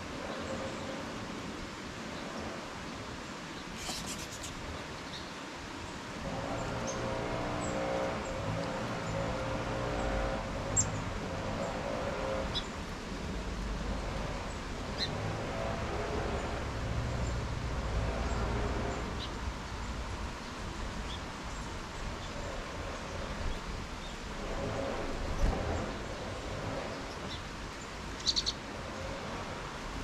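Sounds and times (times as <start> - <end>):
bird chips: 3.8 - 4.6
passing traffic rumble: 5.8 - 30.0.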